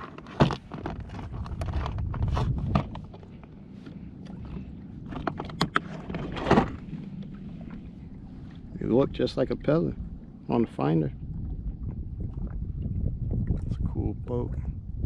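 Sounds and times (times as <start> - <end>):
kayak knocks and slaps: 0.0 - 3.3, 5.1 - 7.8
water on kayak: 0.0 - 15.0
wind: 0.0 - 15.0.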